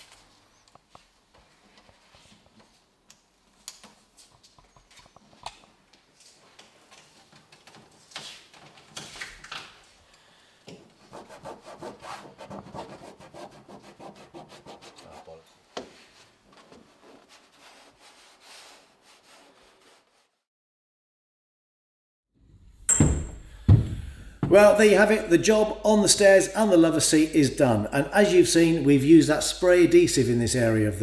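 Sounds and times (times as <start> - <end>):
hands rubbing leathercloth: 11.0 - 20.4
sharp knock: 22.9 - 24.6.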